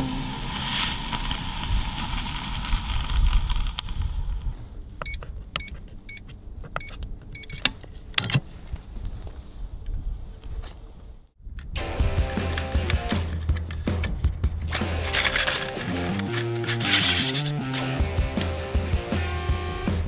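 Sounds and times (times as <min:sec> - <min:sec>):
rushing noise: 0:00.0 - 0:04.6
keypad beeps: 0:05.0 - 0:07.7.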